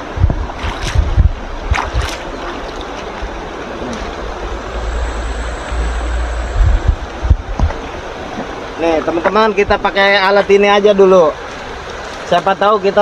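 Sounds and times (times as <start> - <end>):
wind on microphone: 0.0 - 10.0
river running over rocks: 0.0 - 13.0
splashing footsteps in water: 0.4 - 4.2, 11.3 - 12.6.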